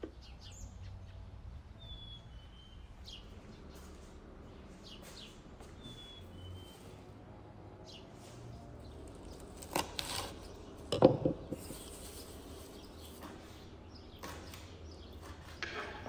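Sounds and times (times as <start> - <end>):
herb leaves rustling: 11.6 - 13.6.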